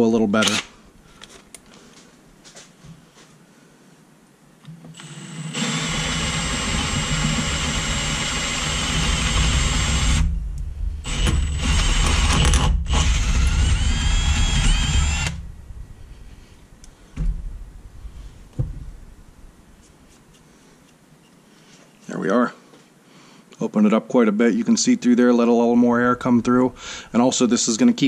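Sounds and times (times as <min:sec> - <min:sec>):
cordless drill boring metal: 0:04.9 - 0:10.3, 0:11.0 - 0:15.4.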